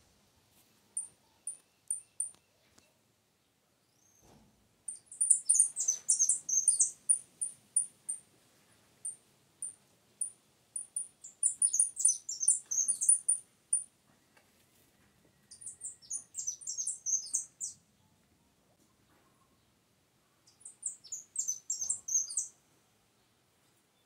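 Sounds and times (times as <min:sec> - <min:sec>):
finch chirping: 0:04.9 - 0:08.2, 0:09.0 - 0:13.9, 0:15.5 - 0:17.8, 0:20.5 - 0:22.5.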